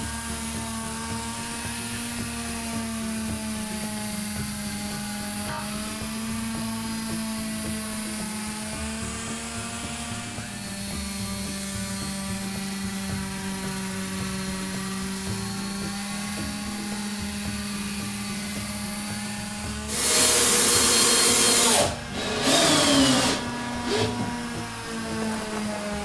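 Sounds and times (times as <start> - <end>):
electric orbital sander: 0.0 - 26.0
power drill running: 0.0 - 26.0.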